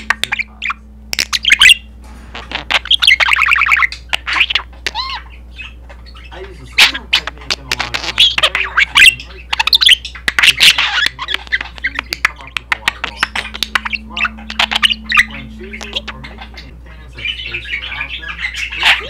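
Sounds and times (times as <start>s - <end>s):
budgerigar chattering: 0.0s - 19.0s.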